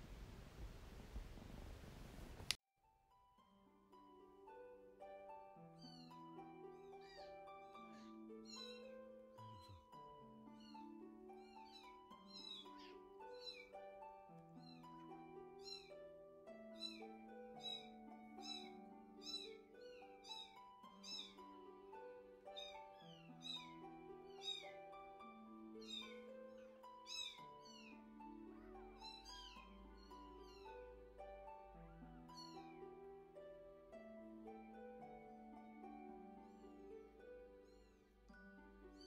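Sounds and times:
soft instrumental music: 2.8 - 39.0.

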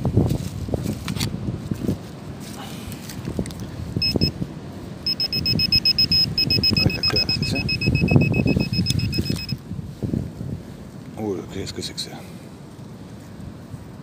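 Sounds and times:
rustling leaves: 0.0 - 14.0
metal detector beeping: 4.0 - 4.4, 5.0 - 9.6.

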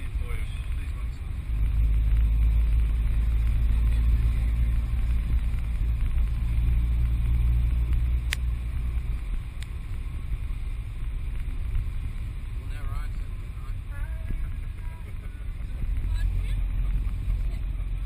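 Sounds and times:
vehicle rumble from on board: 0.0 - 18.0.

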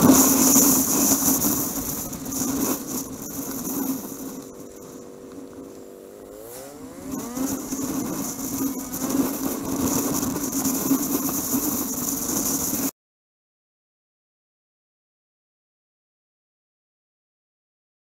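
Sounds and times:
motorcycle engine accelerating: 0.0 - 12.9
wind and road noise: 0.0 - 12.9.

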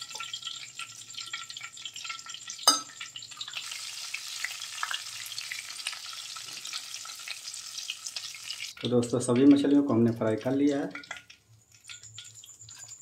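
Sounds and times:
fish sizzling in hot oil: 0.0 - 13.0
metal spatula clanking on metal: 2.7 - 3.0.

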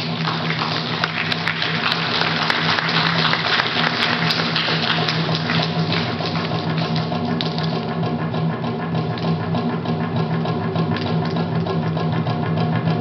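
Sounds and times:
fast drum roll: 0.0 - 8.0.

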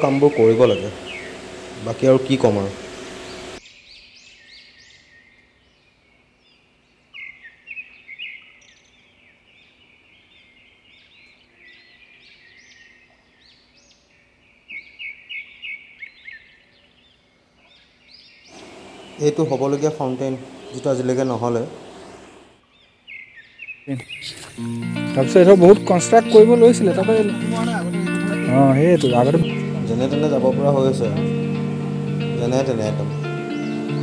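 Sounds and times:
birds chirping and calling: 0.0 - 5.5, 17.6 - 34.0.

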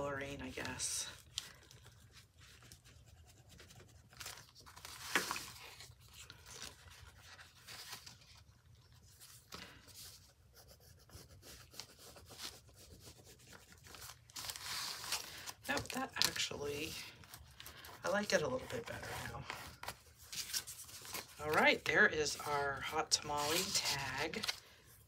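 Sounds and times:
paper rustling: 0.0 - 25.0
pencil scratching on paper: 10.0 - 14.0.

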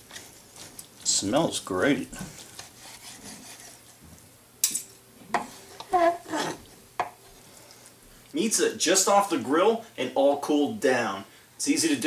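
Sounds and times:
knife scraping wooden board: 5.4 - 6.7.

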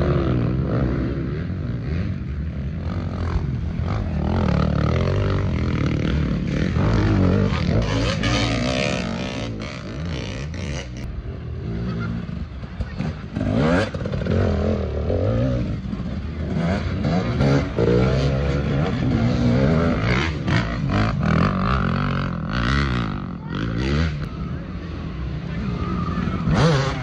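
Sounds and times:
motorbike engines revving: 0.0 - 27.0.

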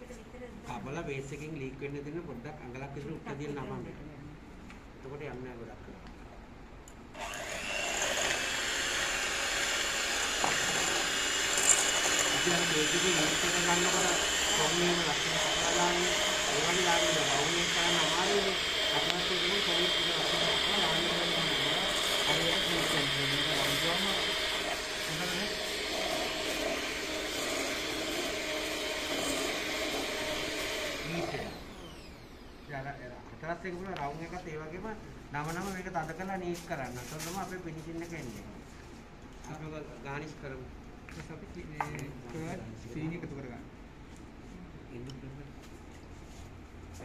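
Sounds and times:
electric mixer whirring: 7.2 - 33.0.

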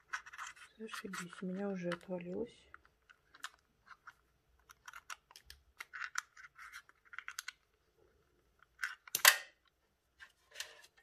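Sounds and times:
fingers clicking and scraping plastic: 0.0 - 7.8.

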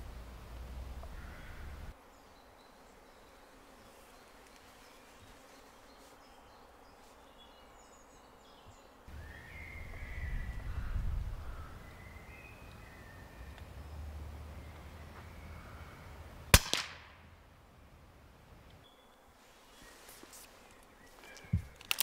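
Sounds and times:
birds chirping and singing: 1.0 - 16.2
wind buffeting microphone: 9.6 - 11.9.

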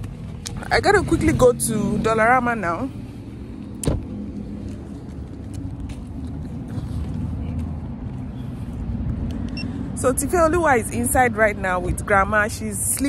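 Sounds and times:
car engine rumble inside cabin: 0.0 - 10.0.

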